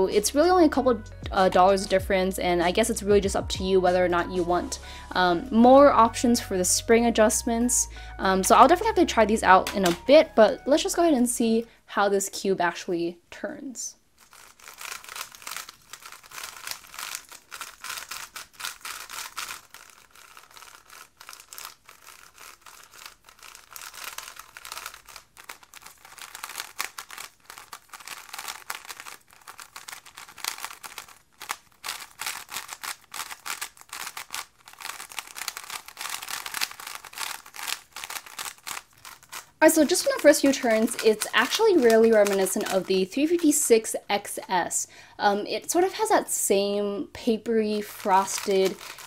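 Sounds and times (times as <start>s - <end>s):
speed cube clicking and turning: 8.4s - 11.0s, 14.2s - 44.5s, 47.6s - 49.0s.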